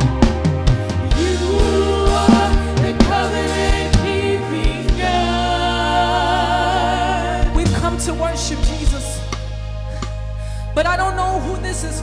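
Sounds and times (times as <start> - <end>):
band playing: 0.0 - 12.0
keyboard and bass chords: 0.0 - 12.0
backing singers: 0.9 - 7.7
woman singing lead: 1.1 - 8.0
drum hits: 2.1 - 4.1.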